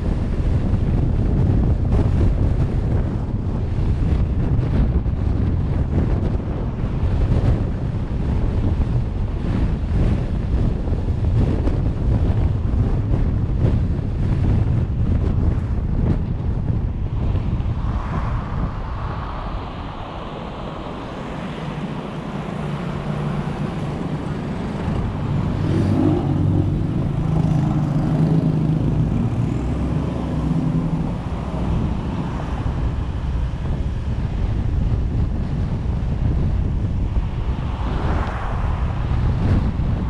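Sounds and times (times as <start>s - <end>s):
car engine drone: 0.0s - 40.0s
tyre and wind noise: 0.0s - 40.0s.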